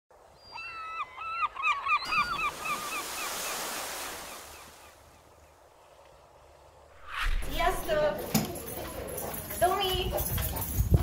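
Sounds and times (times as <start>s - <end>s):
gulls calling: 0.2s - 5.6s
sea surf rushing: 2.4s - 5.0s.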